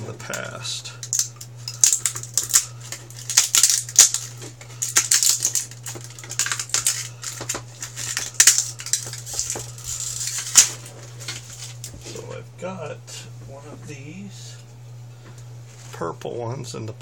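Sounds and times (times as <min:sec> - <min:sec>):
plastic case snapping and crackling: 0:01.1 - 0:11.5.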